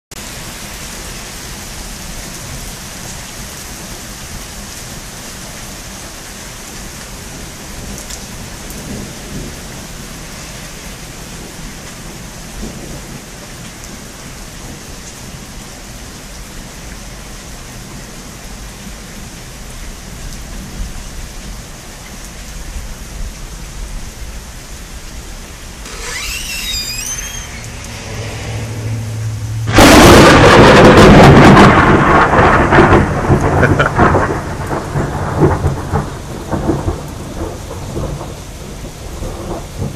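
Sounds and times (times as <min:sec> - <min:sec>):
steady rain: 0:00.1 - 0:39.9
high warbling call: 0:25.9 - 0:29.8
low rumble of thunder: 0:28.0 - 0:39.9.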